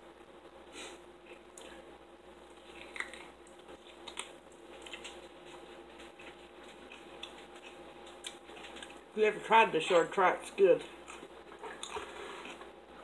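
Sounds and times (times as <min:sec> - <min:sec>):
chewing and mouth smacks: 0:02.4 - 0:09.0, 0:10.9 - 0:12.7.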